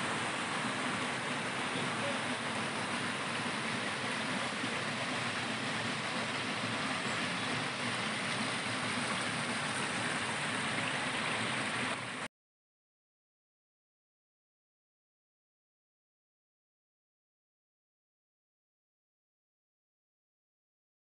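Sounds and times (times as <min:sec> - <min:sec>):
stream rushing over stones: 0:00.0 - 0:12.3.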